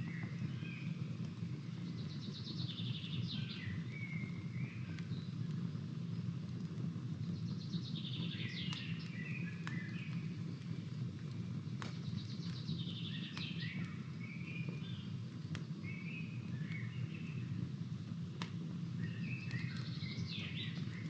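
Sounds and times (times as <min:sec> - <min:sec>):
campfire crackling and popping: 0:00.0 - 0:21.0
low background noise: 0:00.0 - 0:21.0
songbird twittering: 0:19.0 - 0:21.0.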